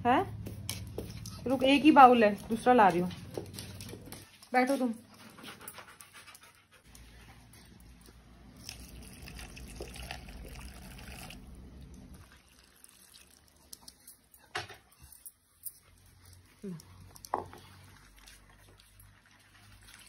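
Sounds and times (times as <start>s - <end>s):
milk trickling and splashing: 8.4s - 14.4s, 17.0s - 20.0s.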